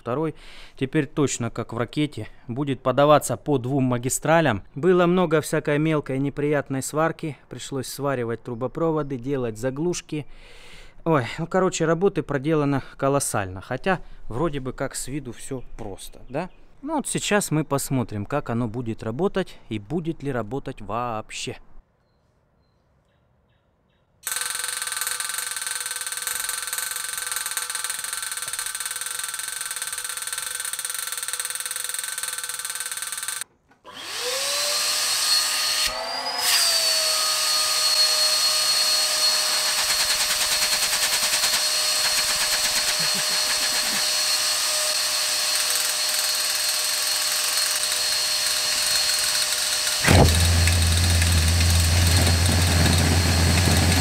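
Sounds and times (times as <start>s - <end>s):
vacuum blower motor whining: 33.9s - 39.9s, 41.3s - 46.1s, 47.6s - 54.0s
jet engine combustion rumble: 50.0s - 54.0s.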